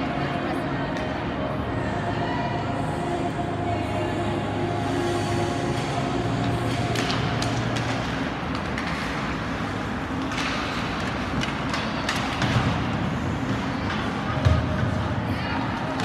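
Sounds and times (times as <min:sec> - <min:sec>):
ice rink noise: 0:00.0 - 0:16.0
hockey sticks and puck clicking: 0:05.7 - 0:14.6.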